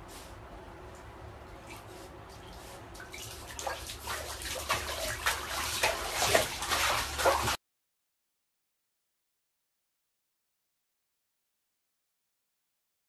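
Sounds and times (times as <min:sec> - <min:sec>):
dog splashing in bath water: 0:01.6 - 0:07.6.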